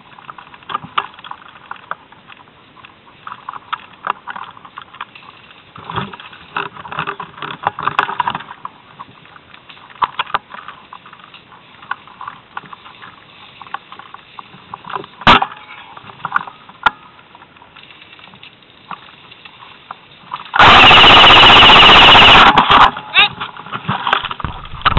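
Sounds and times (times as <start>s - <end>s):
rustling of leaves and twigs: 0.0s - 24.9s
loud distorted burst: 20.6s - 23.0s.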